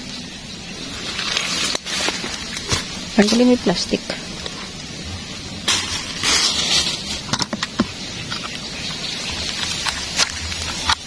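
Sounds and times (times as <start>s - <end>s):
low rumble: 0.0s - 11.0s
rustling dry leaves: 0.0s - 11.0s.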